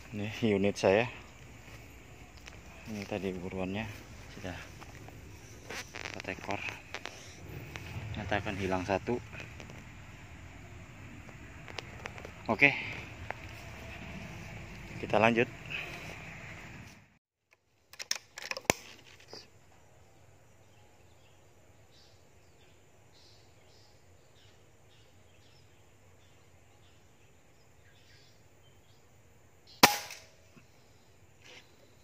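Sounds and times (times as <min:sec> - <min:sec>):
air rifle firing: 0:29.8 - 0:30.3.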